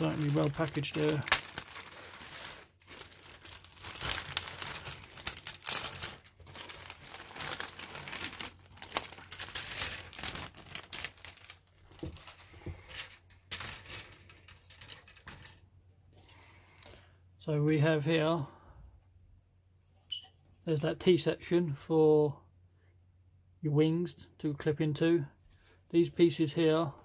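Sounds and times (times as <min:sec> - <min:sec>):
plastic bag crinkling: 0:00.0 - 0:15.6.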